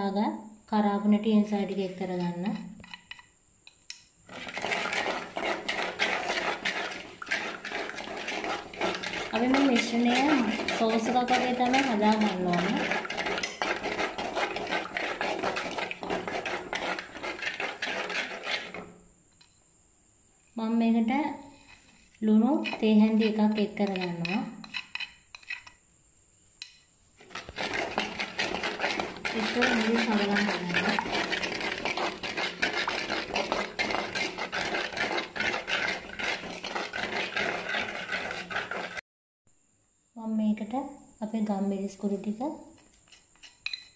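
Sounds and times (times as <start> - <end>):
ladle scraping clay pot: 4.3 - 19.1, 21.4 - 25.8, 27.2 - 39.0.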